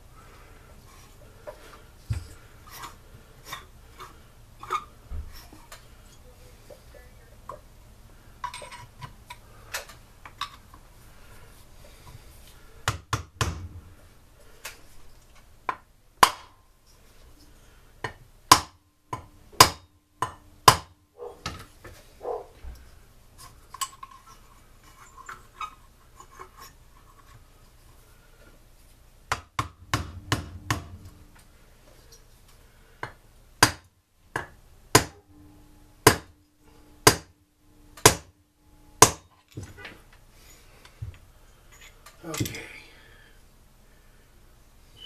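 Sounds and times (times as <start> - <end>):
hammer striking metal: 13.1 - 13.9, 29.3 - 31.4, 34.4 - 36.4, 37.0 - 38.4, 39.0 - 39.3
clinks of parts handled: 41.6 - 42.6.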